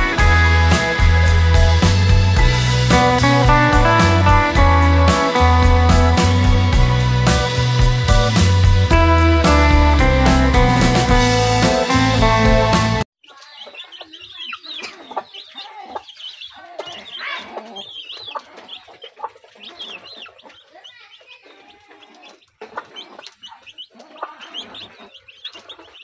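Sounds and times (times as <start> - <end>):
guitar music: 0.0 - 13.1
chicks peeping: 13.2 - 26.0.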